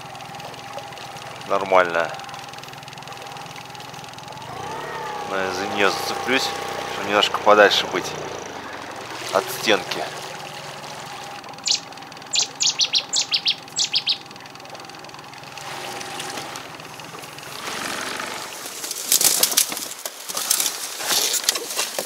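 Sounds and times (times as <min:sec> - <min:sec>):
short sharp bird calls: 0:11.6 - 0:14.3
dry reed stems crackling: 0:18.5 - 0:22.0.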